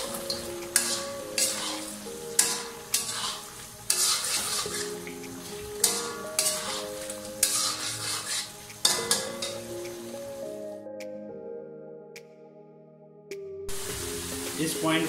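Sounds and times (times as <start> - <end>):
food sizzling: 0.0 - 10.6, 13.7 - 15.0
background music: 0.0 - 15.0
metal spatula scraping pan: 0.2 - 9.6.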